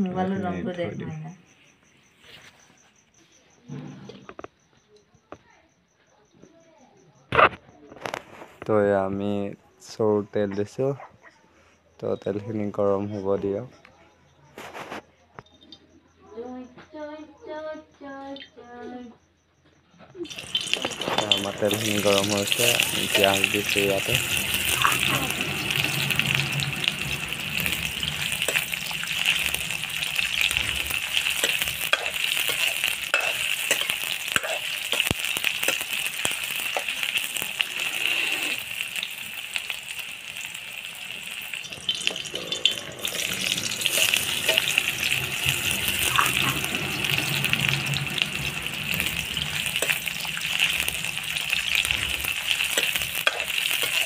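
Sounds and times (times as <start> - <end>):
onions sizzling in hot oil: 20.2 - 54.0
spatula scraping a pan: 20.3 - 38.8, 41.9 - 54.0.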